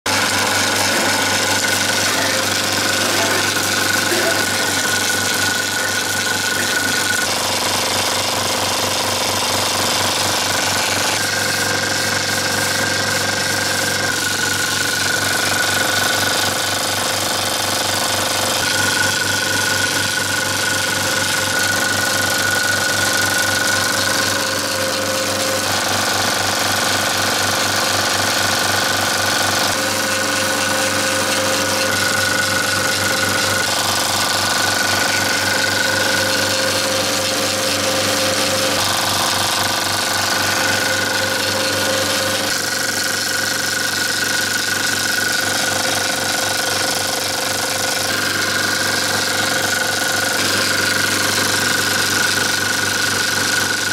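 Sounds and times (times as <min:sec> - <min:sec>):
film projector clattering: 0:00.0 - 0:53.9
projector high whine: 0:00.1 - 0:27.1, 0:27.7 - 0:53.9.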